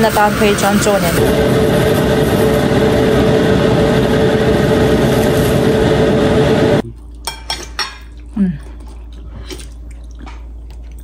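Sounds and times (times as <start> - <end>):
loud machine hum: 0.0 - 6.8.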